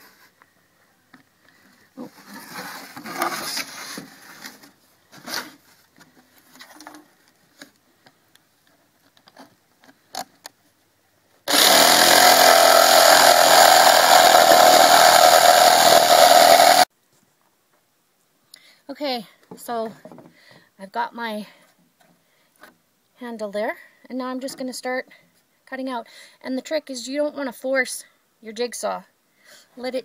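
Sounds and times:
jigsaw running: 11.5s - 16.9s.

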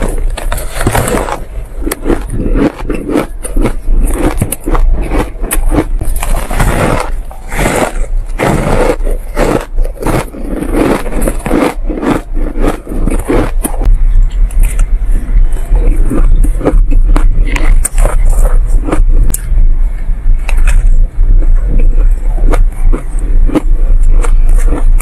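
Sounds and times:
shaved ice crunching when chewed: 0.0s - 13.9s, 21.7s - 25.0s.

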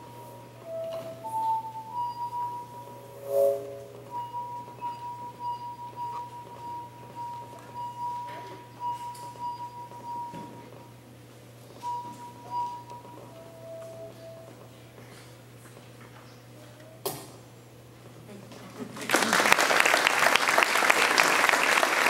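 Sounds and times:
glass harp ringing tones: 0.0s - 10.7s.

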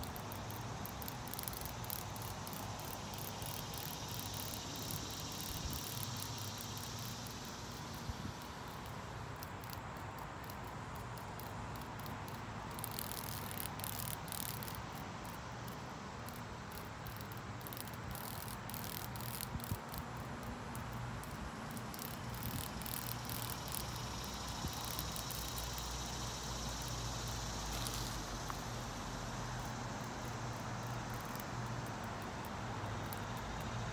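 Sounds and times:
cicada rattling buzz: 0.0s - 33.9s.

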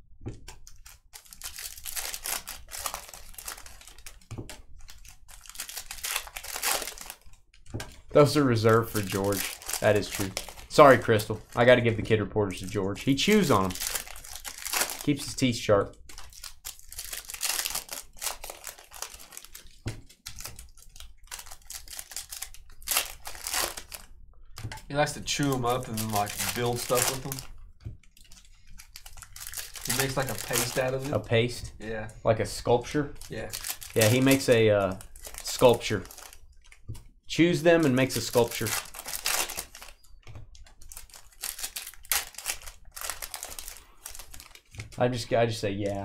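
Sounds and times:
cards clicking and rustling: 0.4s - 31.7s, 32.9s - 45.2s
foil wrappers crinkling: 0.7s - 11.9s, 12.5s - 31.6s, 32.6s - 45.1s.

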